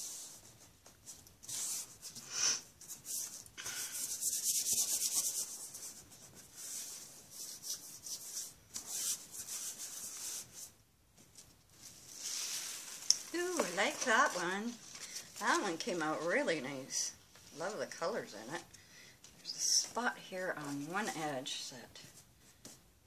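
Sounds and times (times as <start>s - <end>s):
hands rubbing paper: 0.0s - 17.8s.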